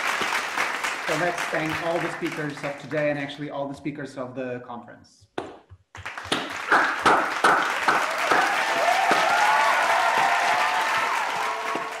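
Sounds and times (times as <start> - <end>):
many people clapping: 0.0 - 3.3, 5.9 - 12.0.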